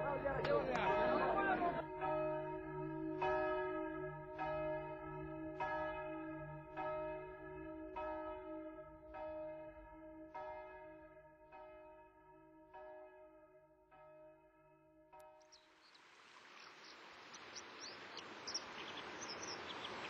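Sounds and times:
church bell tolling: 0.0 - 15.4.

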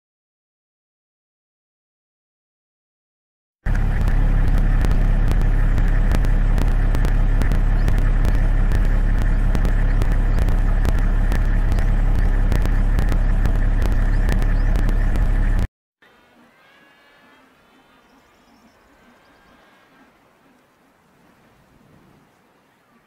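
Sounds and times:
sharp clicks and crackles: 3.7 - 15.7
engine-like running hum: 3.7 - 16.5.

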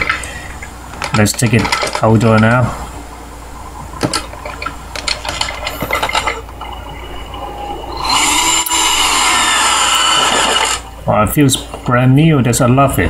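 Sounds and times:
handling clicks and knocks: 0.0 - 2.6, 4.0 - 6.5
cordless drill driving screw: 8.0 - 10.8.

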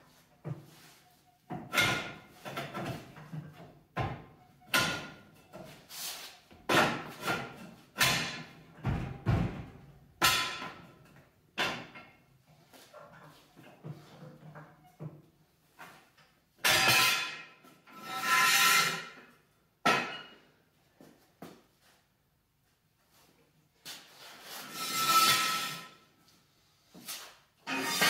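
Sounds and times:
metal-on-metal clanks: 27.6 - 28.0.

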